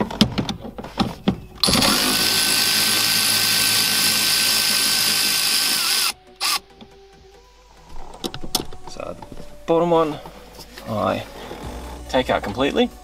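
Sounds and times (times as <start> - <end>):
electric ratchet motor whine: 1.6 - 6.6.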